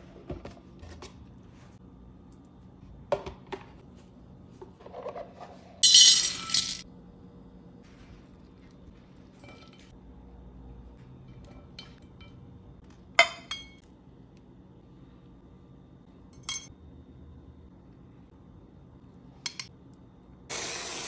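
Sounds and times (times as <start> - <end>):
metal kitchenware clinking: 5.8 - 6.8, 9.4 - 9.9, 13.1 - 13.8, 16.3 - 16.7.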